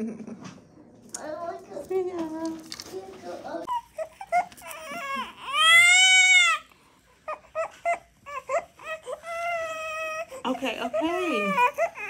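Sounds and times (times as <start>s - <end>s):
infant crying: 3.6s - 6.7s, 7.3s - 12.0s.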